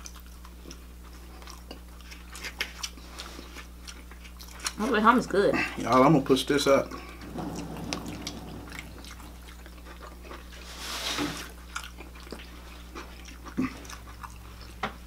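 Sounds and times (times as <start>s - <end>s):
low steady hum: 0.0s - 10.7s.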